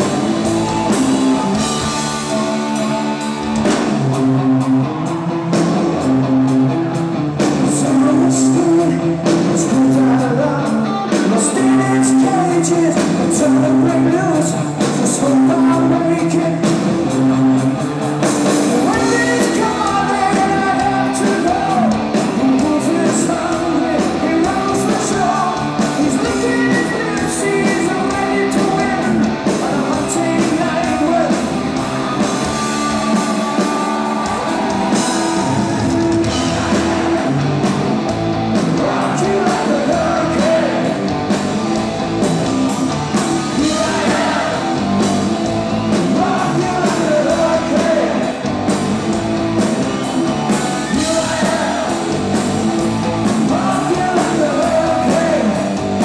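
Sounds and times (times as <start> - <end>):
hard rock band playing: 0.0 - 56.0
man singing: 0.7 - 3.4, 7.5 - 17.8, 18.6 - 31.5, 38.6 - 41.1, 43.5 - 45.0, 45.9 - 48.4, 50.8 - 52.2, 53.2 - 55.8.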